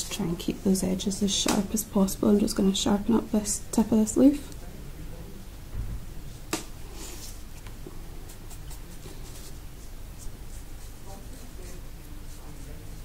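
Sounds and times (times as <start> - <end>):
paintbrush scratching on paper: 8.1 - 13.0.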